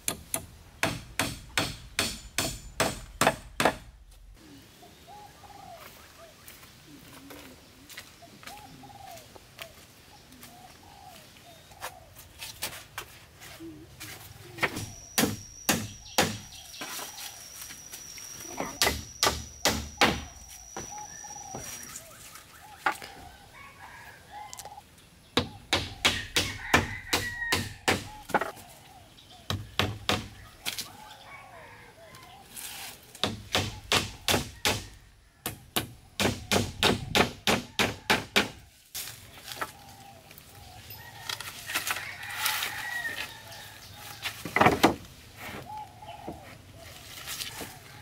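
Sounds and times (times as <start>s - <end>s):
birds calling softly: 4.3s - 12.6s, 13.6s - 37.8s, 45.2s - 48.0s.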